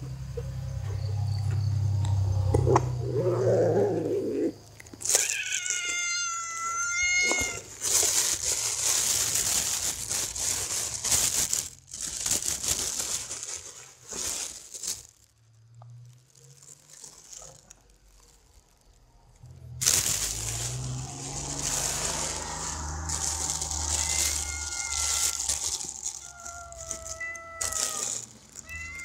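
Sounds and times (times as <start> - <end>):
rustling: 4.8 - 29.0
kitten meowing: 5.1 - 7.7, 20.9 - 29.0.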